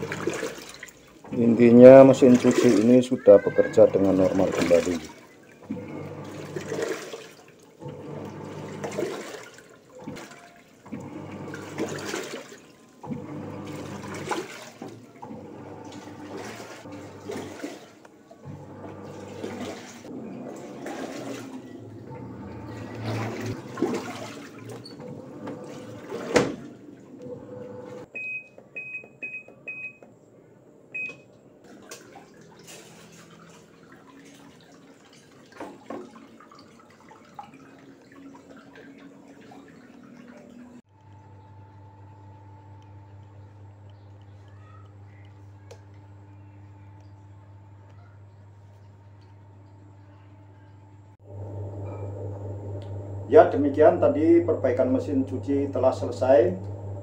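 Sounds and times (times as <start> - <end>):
washing machine agitating: 0.0 - 30.0, 31.0 - 57.0
control panel beeps: 28.2 - 30.0, 31.0 - 31.3
washing machine stopping click: 51.6 - 57.0.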